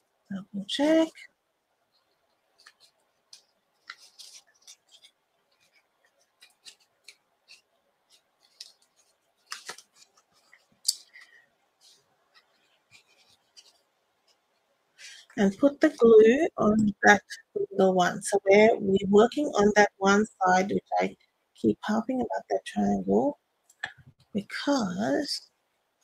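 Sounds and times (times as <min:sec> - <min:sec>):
paper rustles: 0:02.5 - 0:14.4
crisp paper clicks: 0:06.2 - 0:11.4.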